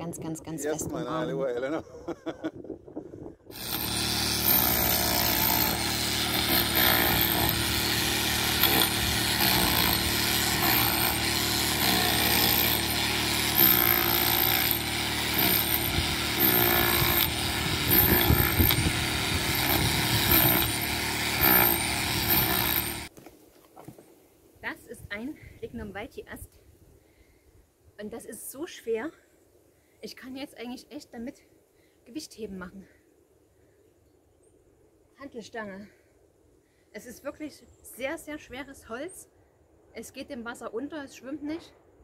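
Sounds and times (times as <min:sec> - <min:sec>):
generator running: 0:03.5 - 0:23.1
hammer drill knocking masonry: 0:03.5 - 0:23.1.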